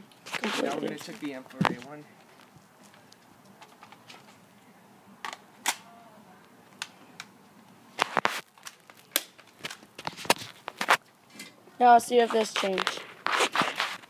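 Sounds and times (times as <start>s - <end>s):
airsoft gun plastic clicks: 8.0s - 9.8s.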